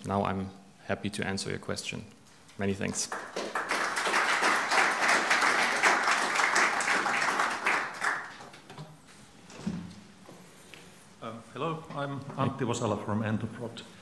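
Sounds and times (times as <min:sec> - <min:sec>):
audience applauding: 0:02.8 - 0:08.7.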